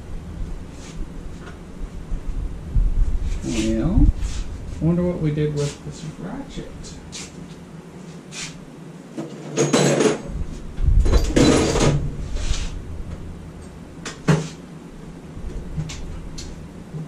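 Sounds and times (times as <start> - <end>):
tools clattering and knocking: 9.2 - 10.3, 11.0 - 12.0.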